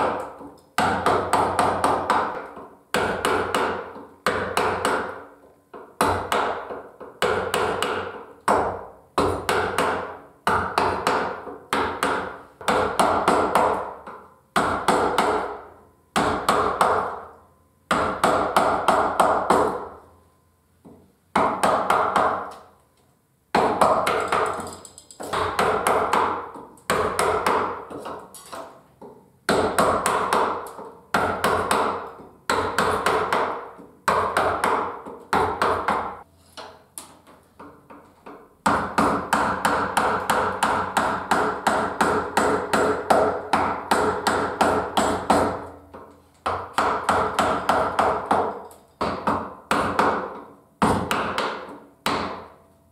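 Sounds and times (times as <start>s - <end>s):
mallet striking a gouge: 0.0s - 17.3s, 17.9s - 19.9s, 20.8s - 22.6s, 23.5s - 52.6s.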